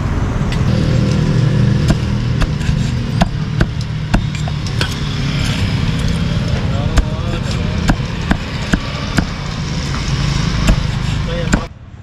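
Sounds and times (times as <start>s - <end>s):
engine running steadily: 0.0s - 12.0s
cleaver chopping on a board: 1.8s - 5.0s, 6.9s - 9.4s, 10.6s - 11.7s.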